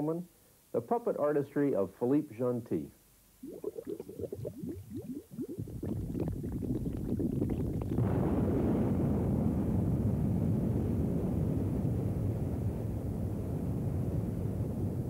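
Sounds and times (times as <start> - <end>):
low bubbling and gurgling: 3.4 - 9.9
dense low rumble: 3.6 - 10.8.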